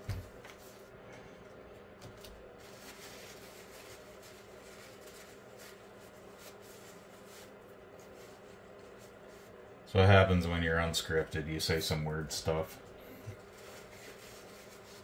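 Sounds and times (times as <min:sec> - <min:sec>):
low steady hum: 0:00.0 - 0:15.0
plastic bag rustling: 0:02.1 - 0:09.6, 0:12.6 - 0:15.0.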